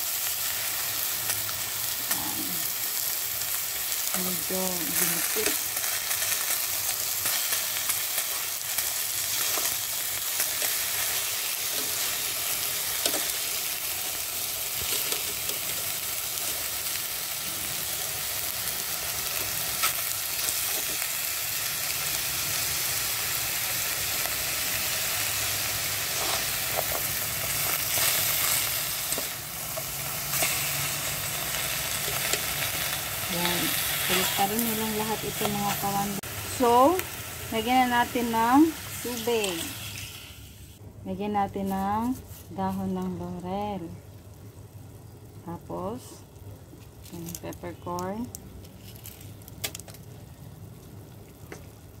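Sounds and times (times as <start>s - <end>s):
chicken sizzling in a pot: 0.0s - 40.8s.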